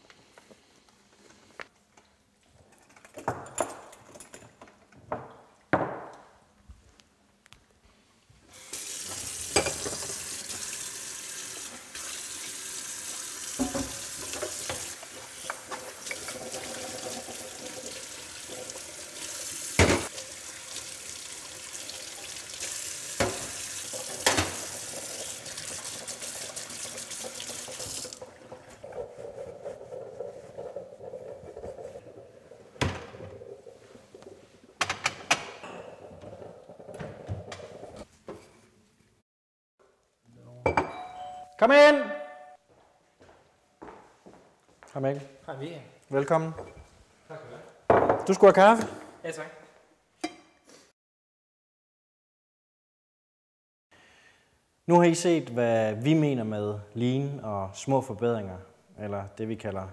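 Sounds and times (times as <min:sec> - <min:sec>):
glassware clinking: 0:13.6 - 0:14.0, 0:40.6 - 0:41.6
tap running into steel sink: 0:13.6 - 0:14.9.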